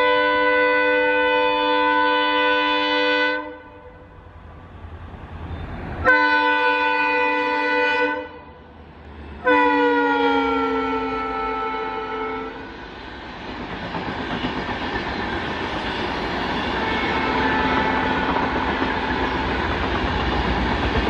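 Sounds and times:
locomotive horn blasts: 0.0 - 4.1, 6.0 - 8.6, 9.4 - 12.7, 16.7 - 18.6
train rumble: 0.0 - 21.0.

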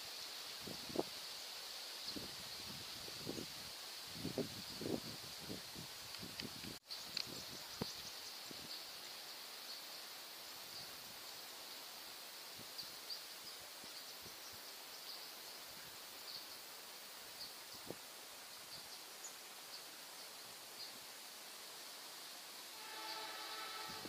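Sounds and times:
high-pitched insect buzz: 22.6 - 24.0.

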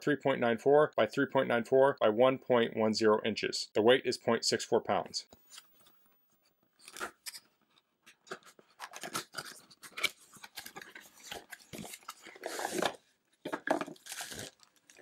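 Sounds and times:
packaging rustling: 8.1 - 15.0.

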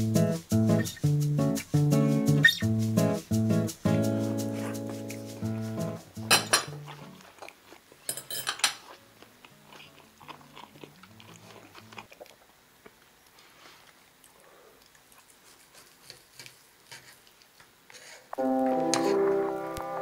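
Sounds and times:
acoustic guitar music: 0.0 - 7.2, 18.4 - 20.0.

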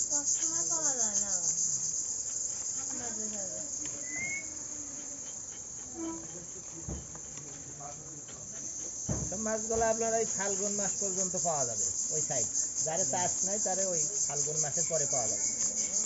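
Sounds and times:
insects chirring: 0.0 - 16.0
knock: 6.8 - 7.2, 9.0 - 10.0.

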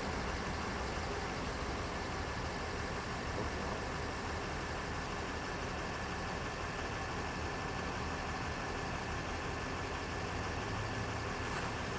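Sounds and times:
road noise: 0.0 - 11.9.

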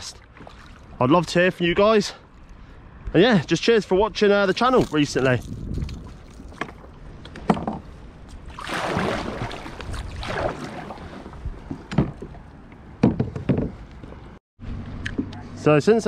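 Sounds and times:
paddle splashing through water: 0.2 - 1.0, 8.3 - 12.3.

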